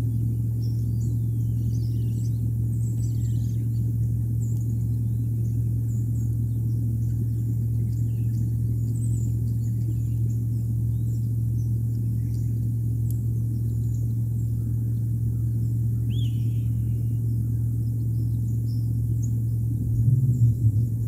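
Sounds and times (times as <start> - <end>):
low hum: 0.0 - 21.0
faint high chirps: 15.6 - 17.3.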